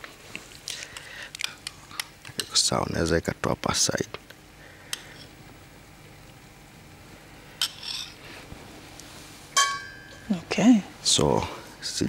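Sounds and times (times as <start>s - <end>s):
crockery clink ringing: 9.6s - 10.3s.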